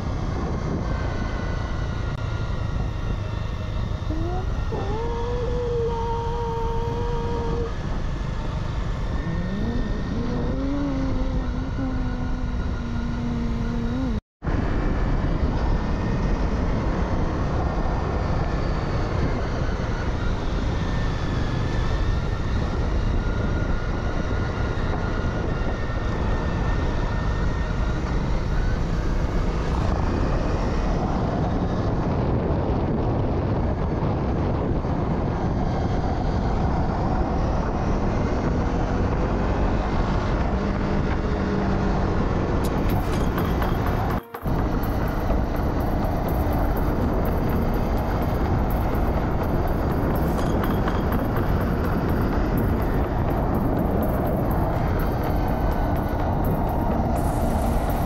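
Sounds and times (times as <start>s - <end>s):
wind on microphone: 0.0s - 58.0s
dirt bike engine running: 40.4s - 58.0s.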